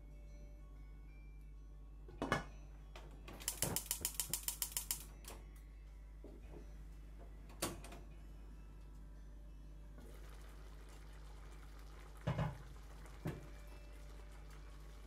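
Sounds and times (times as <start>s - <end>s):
gas hob igniter clicking: 3.4s - 5.1s.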